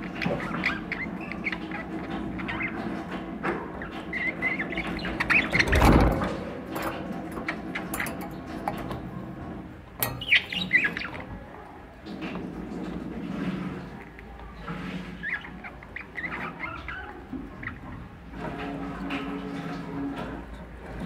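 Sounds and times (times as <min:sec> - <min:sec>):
budgerigars chattering: 0:00.0 - 0:06.0, 0:10.0 - 0:11.5, 0:15.2 - 0:18.0.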